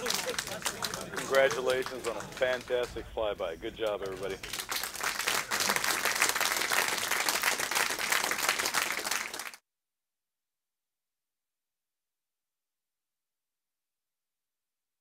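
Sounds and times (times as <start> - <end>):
crowd applauding: 0.0 - 9.6.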